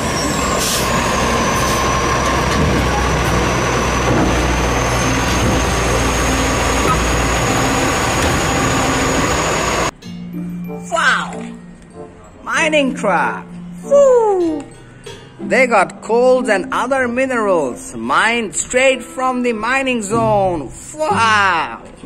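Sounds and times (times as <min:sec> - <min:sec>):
garbage truck engine rumble: 0:00.0 - 0:10.0.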